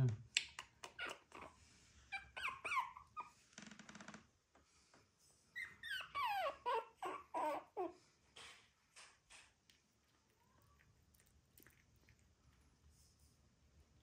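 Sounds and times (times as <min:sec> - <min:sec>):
puppies whining and yipping: 0:01.0 - 0:03.4, 0:05.5 - 0:08.0.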